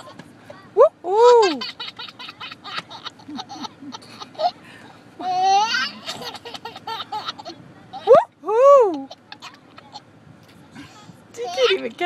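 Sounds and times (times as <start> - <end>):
baby laughing and squealing: 5.2 - 10.0.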